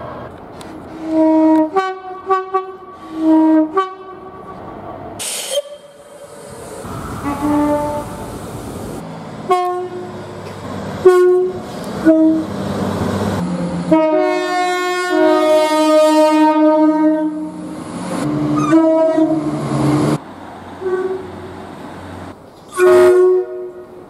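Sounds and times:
rumble of moving trains: 0.0s - 24.0s
long two-tone train horn: 1.0s - 4.5s, 6.9s - 8.3s, 9.5s - 10.1s, 11.0s - 12.5s, 13.9s - 17.6s, 18.3s - 19.6s, 20.8s - 21.3s, 22.7s - 24.0s
short sharp train horn blasts: 1.0s - 4.5s, 5.2s - 6.2s, 6.9s - 8.3s, 9.5s - 10.1s, 11.0s - 12.5s, 13.9s - 17.6s, 18.3s - 19.5s, 20.8s - 21.3s, 22.7s - 24.0s.

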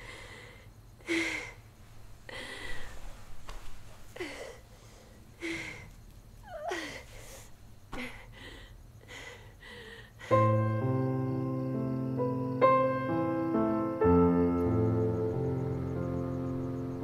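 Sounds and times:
woman breathing heavily: 0.0s - 10.6s
piano music: 10.3s - 17.0s.

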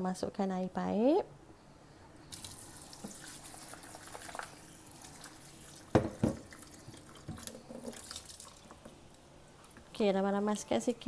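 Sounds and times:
tap water running into a bowl: 2.3s - 9.0s.

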